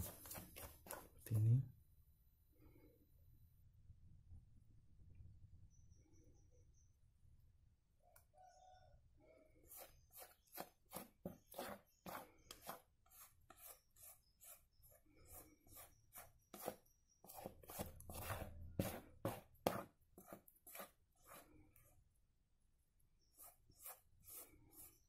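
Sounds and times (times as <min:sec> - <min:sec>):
spatula scraping metal bowl: 0:00.0 - 0:01.1, 0:09.6 - 0:21.8, 0:23.3 - 0:25.0.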